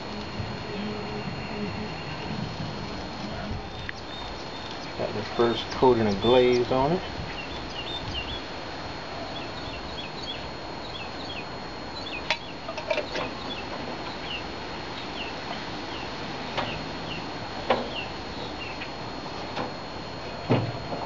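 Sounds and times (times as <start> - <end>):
small birds chirping: 3.2 - 8.6, 9.2 - 19.0.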